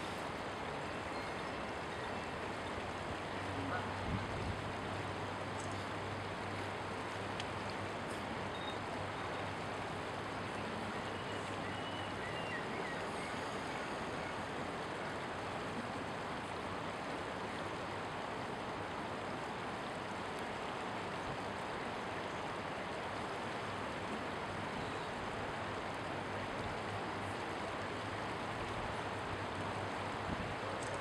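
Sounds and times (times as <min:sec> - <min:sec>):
river rapids rushing: 0:00.0 - 0:31.0.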